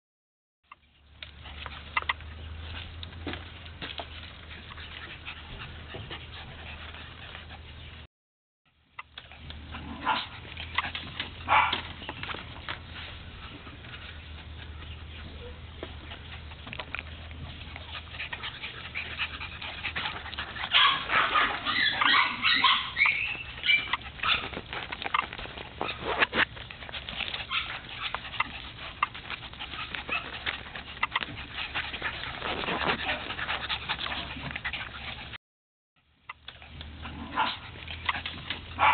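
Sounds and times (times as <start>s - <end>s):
puppies crying: 9.0s - 35.4s, 36.3s - 38.9s.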